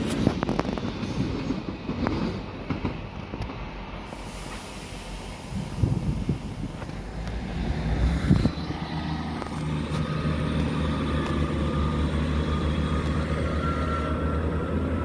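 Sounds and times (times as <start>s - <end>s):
diesel engine drone: 4.8s - 15.0s.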